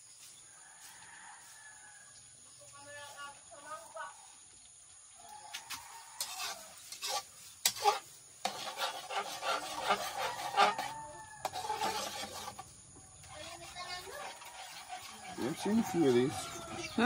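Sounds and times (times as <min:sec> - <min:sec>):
metal spatula scraping wok: 0:06.2 - 0:17.0.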